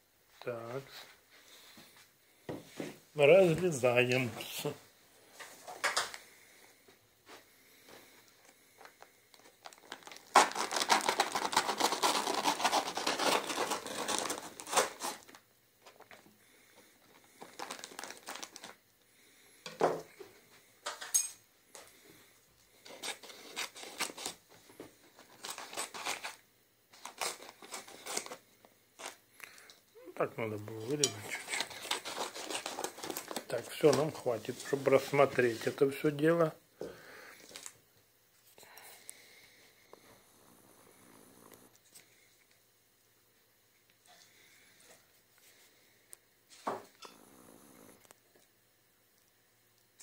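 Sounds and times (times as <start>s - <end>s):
paper bag crinkling: 8.9s - 16.2s, 17.0s - 18.8s, 22.8s - 28.4s, 30.6s - 35.9s
knife and scissors cutting paper: 10.3s - 15.2s, 25.4s - 26.4s, 31.0s - 34.0s.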